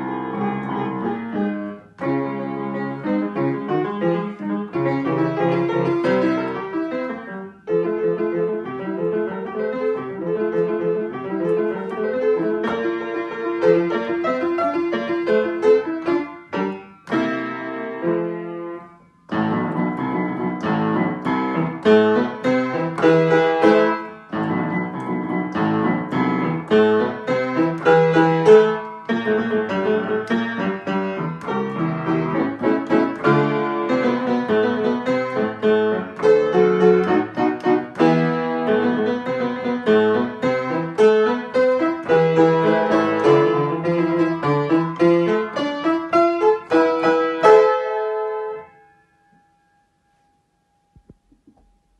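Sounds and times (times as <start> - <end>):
solo piano classical piece: 0.0 - 51.9.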